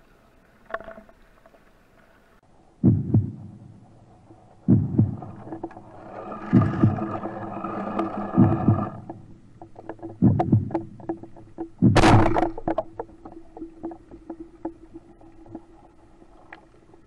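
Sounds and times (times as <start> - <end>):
steady low hum: 2.5 - 16.3
dull thump: 10.0 - 13.1
speargun firing underwater: 10.2 - 13.1.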